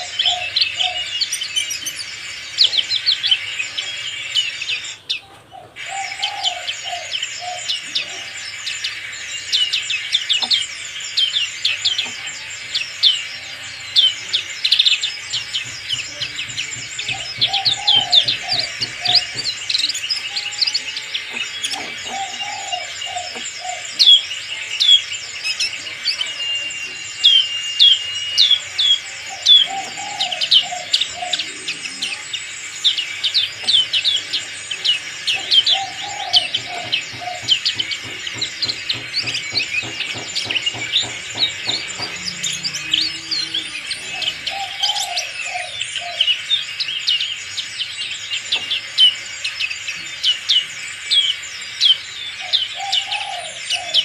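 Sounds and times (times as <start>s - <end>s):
bird chattering high chirps: 0.0s - 54.0s
bird whistle: 0.0s - 54.0s.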